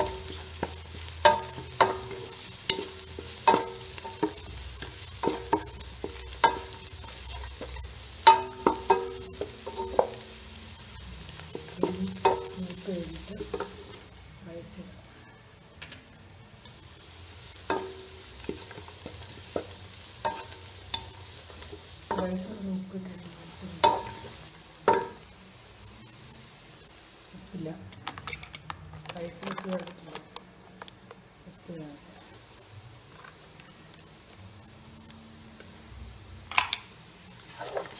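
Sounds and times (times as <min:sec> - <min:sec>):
vegetables sizzling: 0:00.0 - 0:37.9
spatula scraping frying pan: 0:37.5 - 0:37.9.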